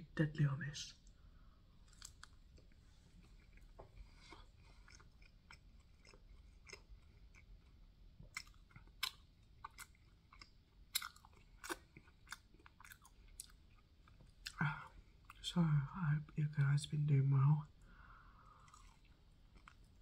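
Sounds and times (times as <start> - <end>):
person chewing: 1.8 - 15.4, 18.4 - 20.0.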